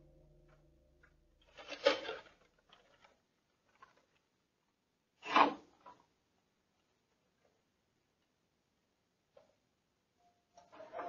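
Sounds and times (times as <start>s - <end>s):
music tone: 0.0s - 2.2s.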